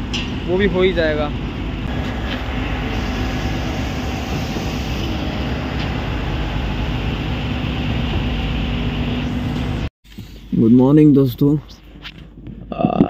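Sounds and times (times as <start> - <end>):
concrete pump droning: 1.8 - 9.9.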